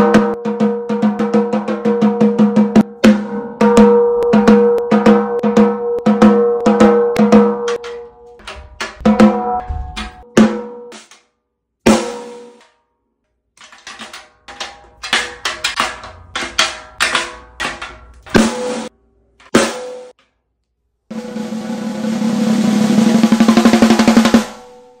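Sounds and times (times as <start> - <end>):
snare drum hits and roll: 11.9 - 12.6, 15.2 - 18.9, 21.1 - 24.9.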